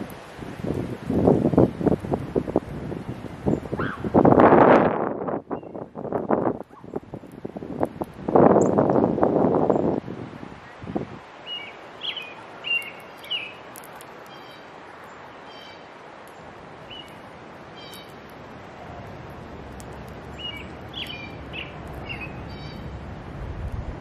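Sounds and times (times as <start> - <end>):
songbirds whistled chirps: 5.5 - 5.8, 11.4 - 15.9, 16.8 - 18.2, 20.4 - 22.9
nasal buzzy bird calls: 11.5 - 13.6, 16.8 - 18.2, 20.4 - 22.9.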